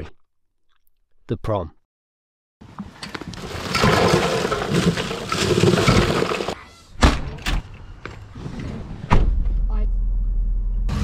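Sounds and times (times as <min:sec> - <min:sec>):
ice cubes pouring into cooler: 0:03.4 - 0:06.6.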